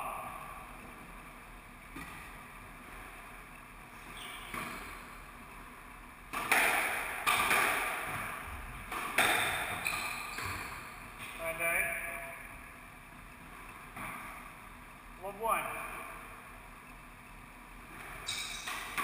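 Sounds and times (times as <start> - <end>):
ball hitting wall: 6.3 - 9.8
squash ball racket hits: 6.3 - 10.9, 18.3 - 19.0.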